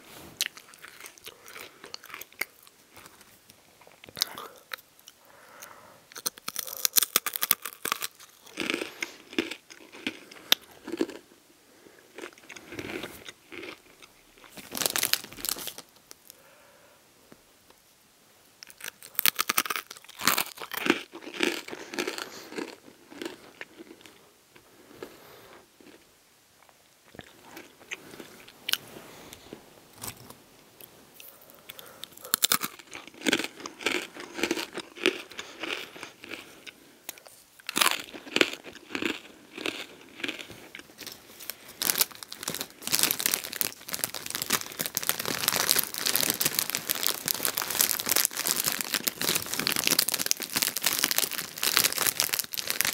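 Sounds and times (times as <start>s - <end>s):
crunching and chewing pretzels: 0.4s - 11.4s, 12.0s - 16.5s, 18.6s - 52.9s
plastic snack bag rustling: 6.2s - 11.2s, 12.2s - 16.4s, 37.2s - 52.9s.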